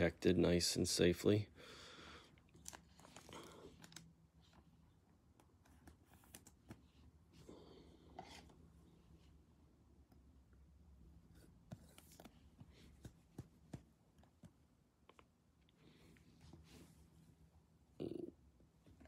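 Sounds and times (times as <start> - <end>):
trading cards rustling: 2.5 - 4.7, 5.3 - 7.0.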